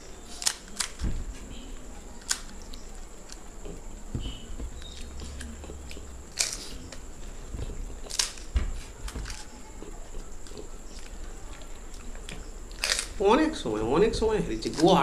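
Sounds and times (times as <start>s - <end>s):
crunching and chewing: 0.0s - 13.2s
crisp shells cracking: 0.3s - 1.1s, 2.2s - 3.5s, 4.8s - 7.0s, 7.9s - 9.6s, 10.5s - 13.2s.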